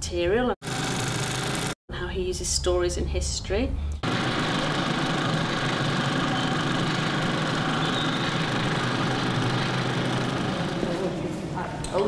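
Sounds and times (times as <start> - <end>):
film projector whirring: 0.6 - 1.8, 4.0 - 11.2.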